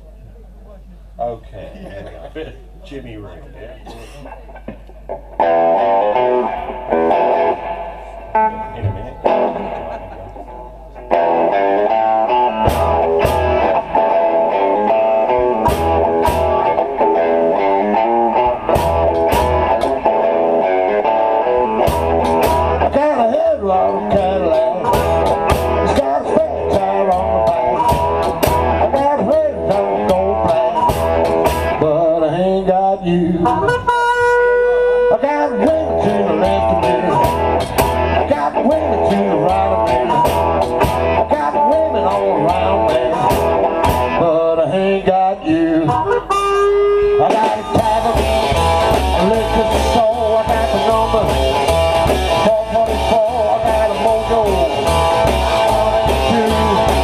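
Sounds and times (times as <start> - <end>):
upright bass: 0.0 - 57.0
electric guitar phrases: 5.0 - 57.0
steady drum beat: 11.1 - 31.8, 35.7 - 44.3, 47.2 - 57.0
harmonica: 33.3 - 38.0, 45.8 - 52.6.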